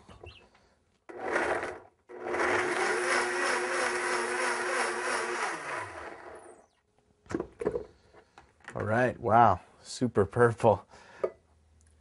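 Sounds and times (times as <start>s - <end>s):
blender motor running: 1.1s - 6.7s.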